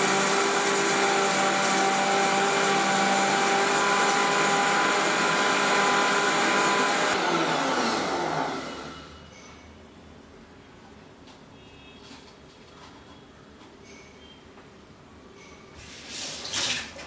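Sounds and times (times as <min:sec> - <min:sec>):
mixer grinder grinding: 0:00.0 - 0:09.2.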